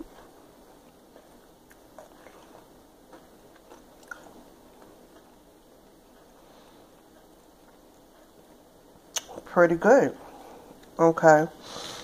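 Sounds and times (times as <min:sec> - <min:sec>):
chewing crispy potato wedge: 0:00.2 - 0:06.3.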